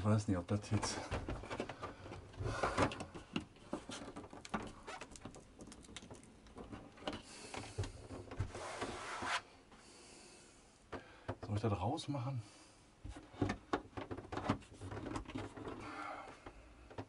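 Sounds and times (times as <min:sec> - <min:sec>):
hand rubbing scrape on panel: 0:08.4 - 0:09.5.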